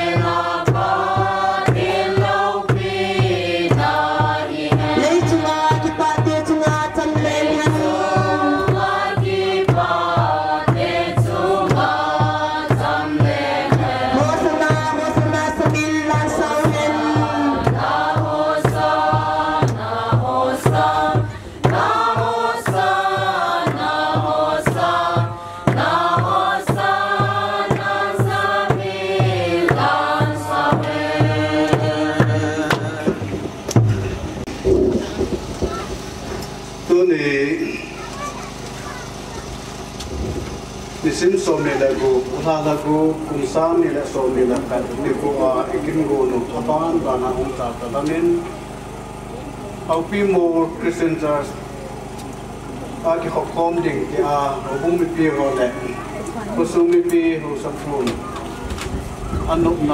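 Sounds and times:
song with sung voices and beat: 0:00.0 - 0:34.5.

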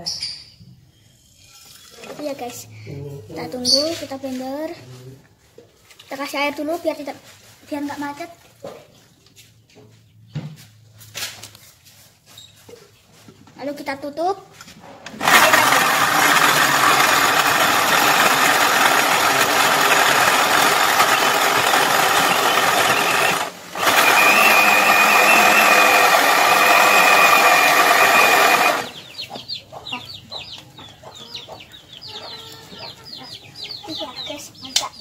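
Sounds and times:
blender grinding: 0:15.1 - 0:29.0
chickens clucking: 0:28.9 - 0:35.0.

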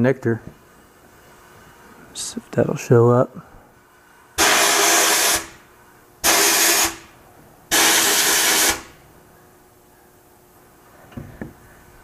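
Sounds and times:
compressed air and grit blasts: 0:04.4 - 0:09.0.

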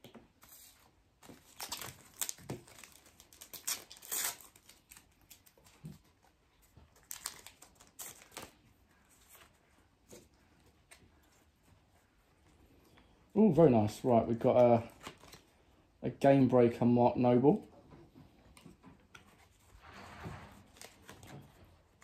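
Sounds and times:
foil packets crinkling: 0:00.5 - 0:06.1, 0:06.9 - 0:09.6, 0:13.8 - 0:15.6
foil packet tearing: 0:01.4 - 0:05.6, 0:07.0 - 0:08.6.

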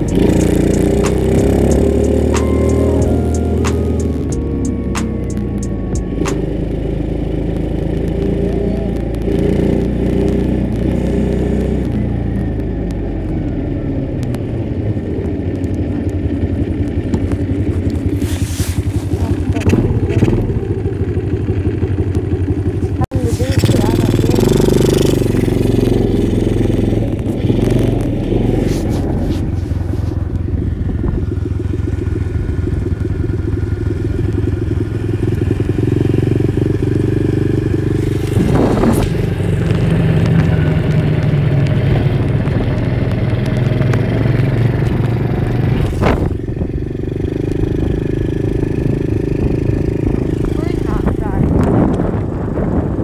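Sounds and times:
dirt bike engine running: 0:00.0 - 0:53.0.

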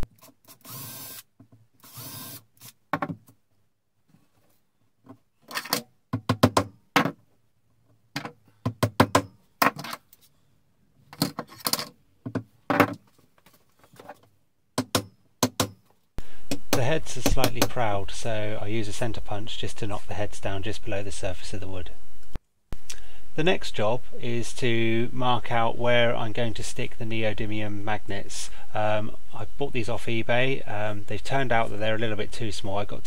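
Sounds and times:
cordless drill burst: 0:00.5 - 0:02.5
hammer tapping nails: 0:14.8 - 0:15.8.

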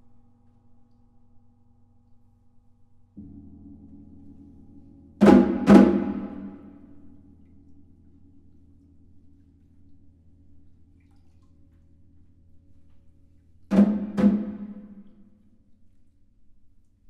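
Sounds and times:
low sustained sound: 0:00.0 - 0:13.7
loud percussion strikes: 0:03.2 - 0:07.8, 0:13.7 - 0:15.4.

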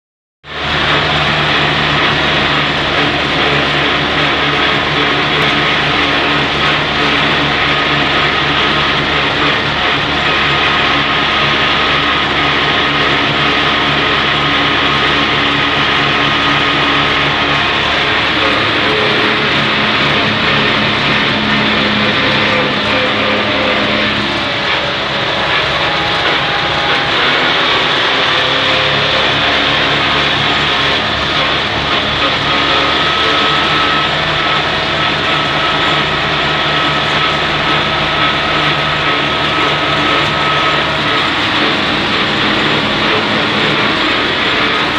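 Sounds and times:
road running noise: 0:00.4 - 0:44.9
vehicle engine drone: 0:00.4 - 0:44.9.

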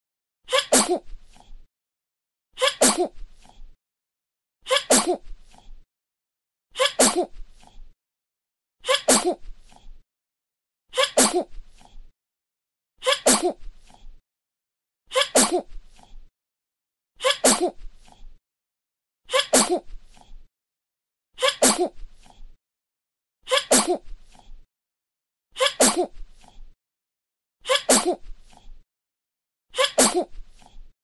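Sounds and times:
baby sneezing: 0:00.5 - 0:01.1, 0:02.6 - 0:03.1, 0:04.7 - 0:05.2, 0:06.8 - 0:07.3, 0:08.9 - 0:09.4, 0:11.0 - 0:11.5, 0:13.0 - 0:13.6, 0:15.1 - 0:15.7, 0:17.2 - 0:17.8, 0:19.3 - 0:19.9, 0:21.4 - 0:22.0, 0:23.5 - 0:24.0, 0:25.6 - 0:26.2, 0:27.7 - 0:28.2, 0:29.8 - 0:30.3.

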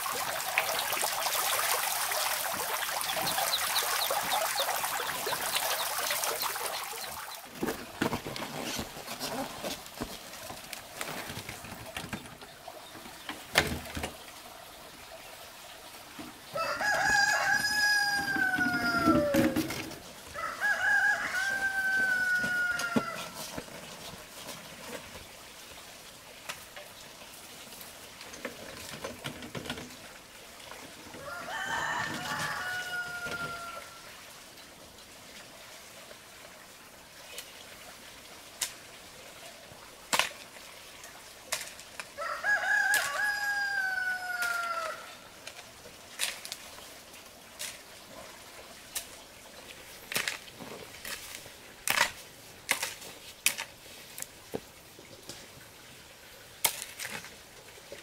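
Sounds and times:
rooster crowing: 0:16.5 - 0:19.7, 0:20.3 - 0:23.4, 0:31.2 - 0:34.0, 0:42.2 - 0:45.2.

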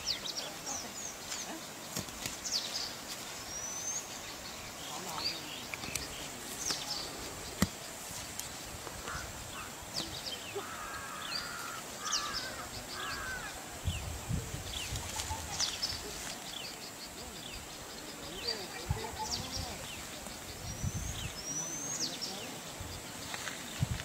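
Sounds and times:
small birds chirping: 0:00.0 - 0:24.0
crows cawing: 0:09.0 - 0:09.7, 0:10.5 - 0:13.7.

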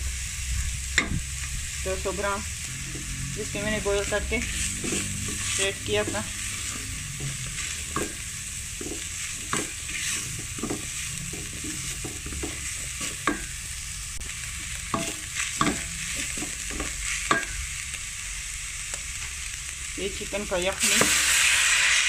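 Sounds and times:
food sizzling in a pot: 0:00.0 - 0:22.0
spatula scraping metal pot: 0:02.7 - 0:13.6, 0:14.9 - 0:17.6.

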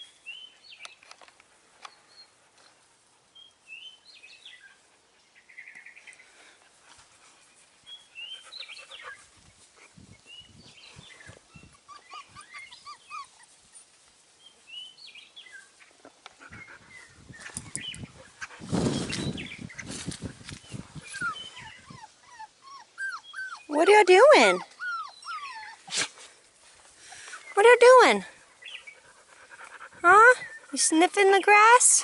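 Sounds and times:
puppies squeaking and whining: 0:11.0 - 0:13.9, 0:20.7 - 0:26.2.

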